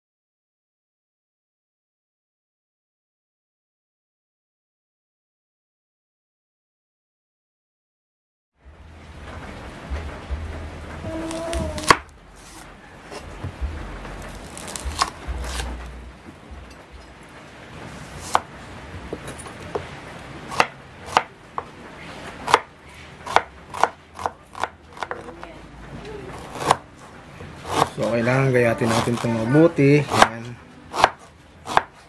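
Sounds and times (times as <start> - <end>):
knife chopping on wooden board: 11.3 - 13.6, 14.2 - 15.8, 18.0 - 18.5, 20.5 - 21.7, 22.4 - 25.4, 26.3 - 26.8, 27.6 - 28.0, 28.8 - 29.4, 30.1 - 32.0.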